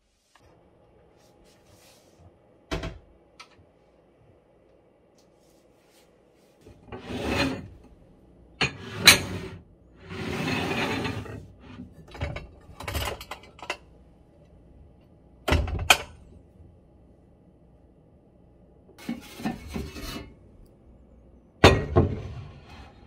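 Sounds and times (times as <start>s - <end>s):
dishware scraping over rack: 6.8s - 7.8s, 8.6s - 13.6s, 19.0s - 20.4s, 21.6s - 23.0s.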